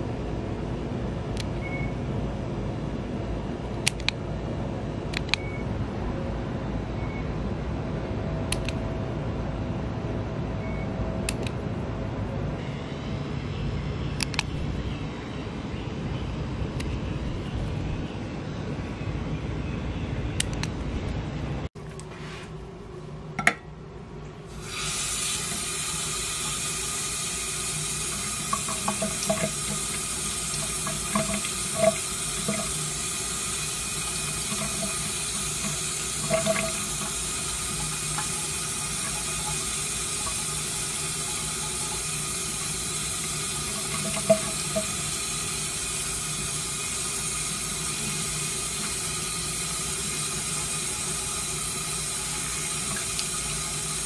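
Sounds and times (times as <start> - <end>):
tap running into a steel sink: 28.1 - 32.8, 34.2 - 39.6, 43.7 - 45.1.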